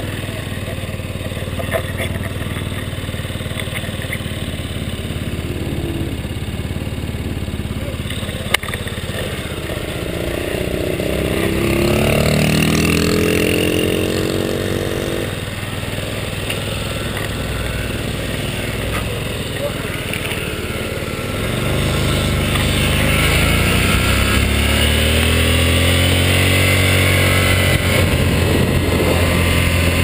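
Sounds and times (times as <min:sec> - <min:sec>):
scooter engine idling: 0:00.0 - 0:11.6, 0:15.2 - 0:24.6
motorbike engine revving: 0:00.0 - 0:30.0.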